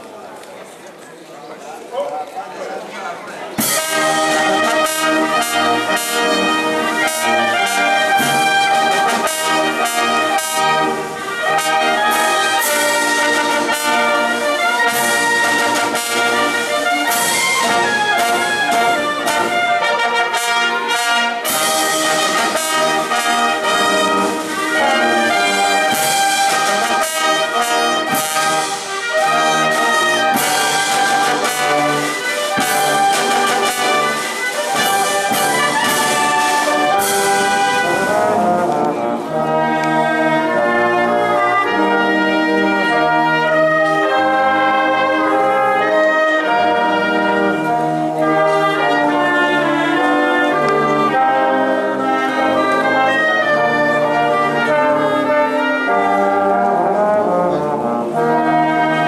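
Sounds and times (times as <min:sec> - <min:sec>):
percussion beats: 0:03.5 - 0:46.2
wind band playing a tune: 0:03.6 - 0:59.0.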